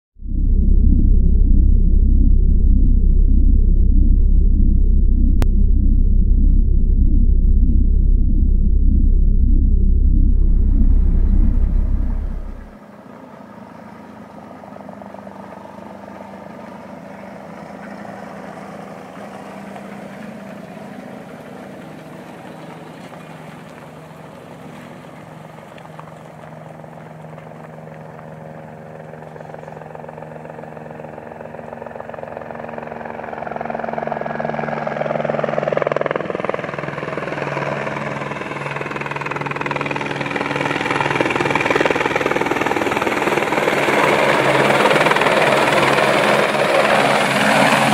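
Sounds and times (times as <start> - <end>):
helicopter rotor and engine: 11.0 - 47.9.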